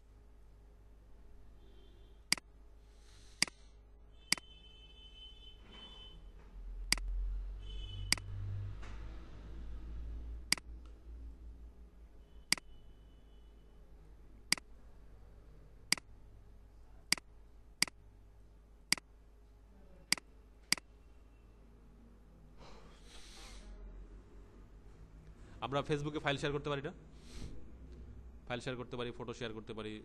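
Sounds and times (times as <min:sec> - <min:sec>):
low steady hum: 0:00.0 - 0:30.0
computer mouse clicking: 0:10.5 - 0:11.0.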